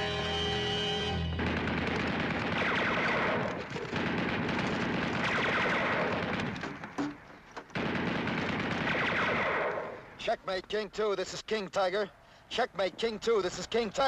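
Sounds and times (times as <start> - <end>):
machine-gun fire: 1.4 - 6.6, 7.8 - 9.8.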